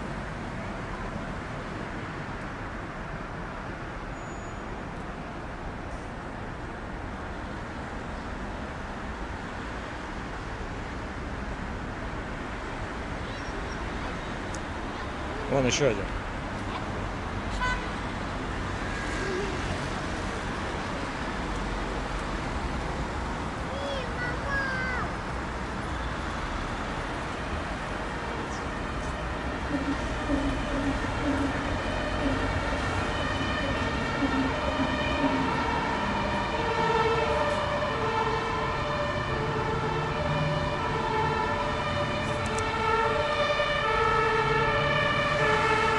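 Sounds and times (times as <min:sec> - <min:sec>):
road traffic: 0:00.0 - 0:45.9
two-tone siren: 0:27.8 - 0:45.9.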